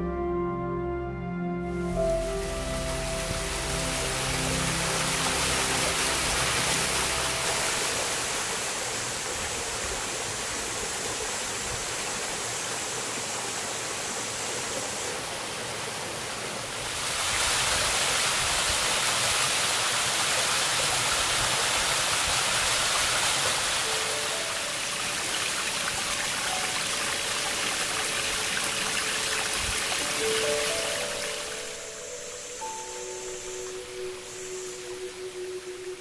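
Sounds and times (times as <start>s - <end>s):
background music: 0.0s - 8.8s, 23.7s - 36.0s
waterfall rushing over rock: 2.2s - 36.0s.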